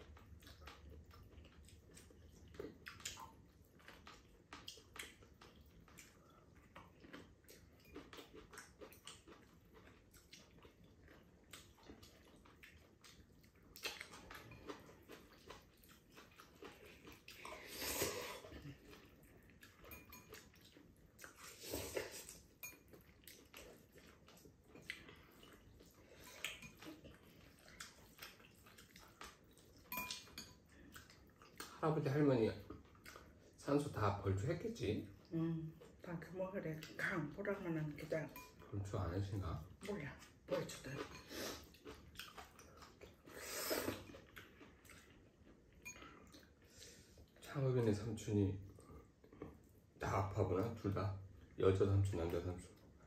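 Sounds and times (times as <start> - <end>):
quiet chewing: 0.0 - 53.0
slurping noodles: 17.3 - 18.6, 21.3 - 22.4, 43.2 - 44.3
chopsticks clicking on ceramic bowls: 29.9 - 30.5.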